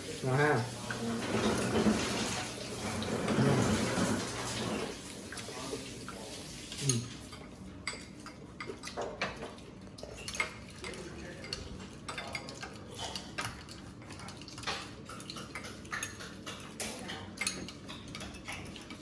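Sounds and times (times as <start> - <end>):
spoons clinking against glass cups: 6.8 - 8.9, 10.1 - 19.0.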